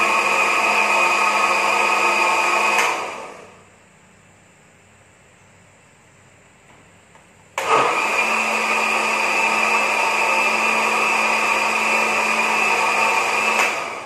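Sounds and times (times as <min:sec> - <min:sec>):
electric blender running: 0:00.0 - 0:03.6, 0:07.6 - 0:14.0.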